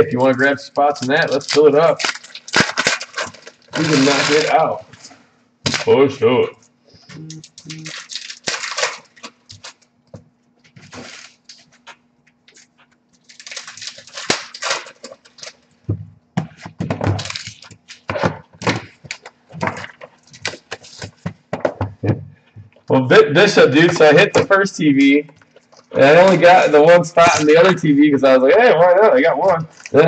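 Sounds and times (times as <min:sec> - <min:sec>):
wrappers rustling and tearing: 0:00.4 - 0:05.1, 0:07.4 - 0:09.9, 0:10.7 - 0:15.7, 0:17.0 - 0:21.2
handling knocks: 0:15.8 - 0:22.7.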